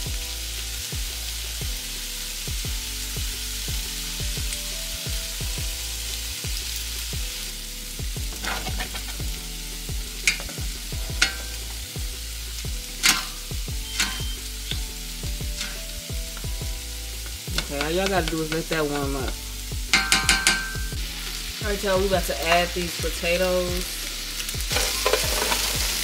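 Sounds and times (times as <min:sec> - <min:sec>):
background music with steady beat: 0:00.0 - 0:26.0
chicken sizzling in a pan: 0:00.0 - 0:26.0
utensil clinking against pan: 0:14.0 - 0:14.8, 0:19.9 - 0:20.9, 0:24.8 - 0:25.7.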